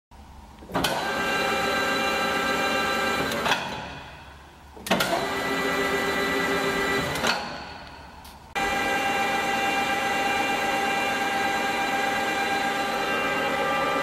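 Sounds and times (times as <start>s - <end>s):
lathe spindle whining: 8.6s - 14.0s.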